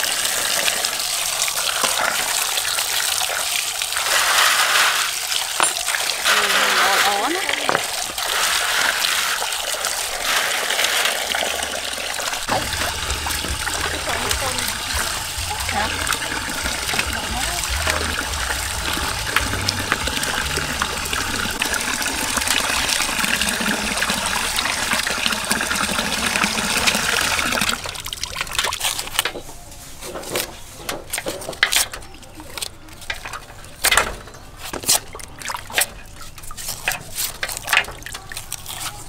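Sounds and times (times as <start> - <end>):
water splashing into steel basin: 0.0 - 29.3, 31.4 - 38.6
knives peeling onion skins: 36.6 - 39.0.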